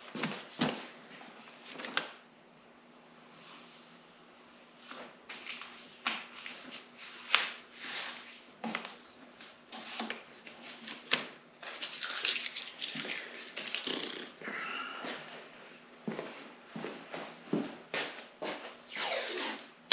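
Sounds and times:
paper rustling and crinkling: 0:00.1 - 0:02.2, 0:04.8 - 0:13.9.

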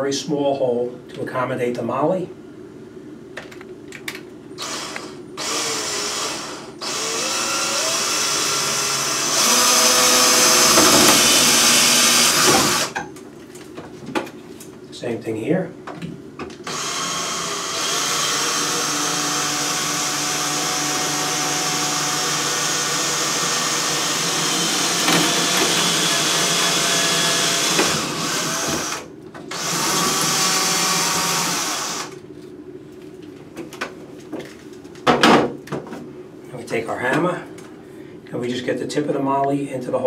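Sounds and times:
electric drill drilling drywall: 0:04.6 - 0:13.0, 0:16.6 - 0:32.2.

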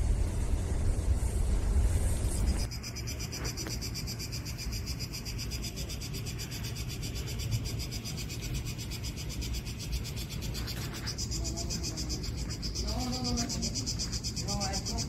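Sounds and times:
low steady rumble: 0:00.0 - 0:03.4
cicadas buzzing: 0:00.0 - 0:15.0.

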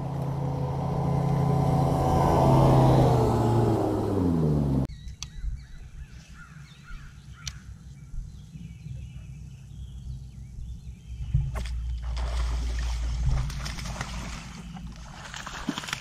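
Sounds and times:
low outdoor rumble: 0:00.0 - 0:04.9, 0:07.0 - 0:16.0
birds calling: 0:02.6 - 0:15.3
fish splashing in water: 0:11.6 - 0:16.0.

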